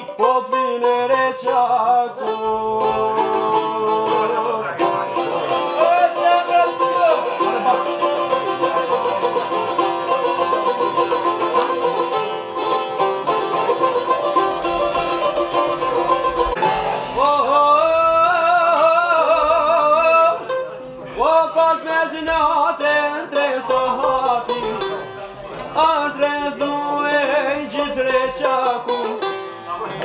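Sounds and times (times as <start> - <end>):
man singing long held notes: 0.0 - 8.0, 17.0 - 20.5, 25.8 - 29.0
plucked string instruments: 0.0 - 30.0.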